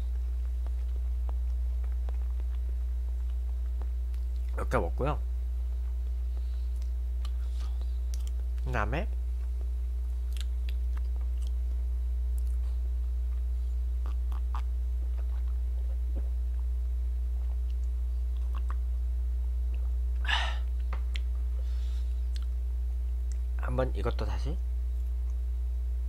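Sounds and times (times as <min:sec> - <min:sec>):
low electrical hum: 0:00.0 - 0:26.0
person chewing: 0:00.1 - 0:04.6, 0:05.8 - 0:08.6, 0:10.2 - 0:11.6, 0:12.3 - 0:16.7, 0:17.4 - 0:18.8, 0:22.2 - 0:22.6.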